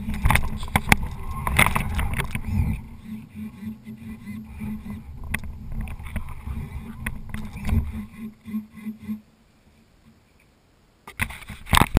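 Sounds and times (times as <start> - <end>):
knocks and rustling: 0.0 - 9.2
electric toy truck motor hum: 0.0 - 9.3.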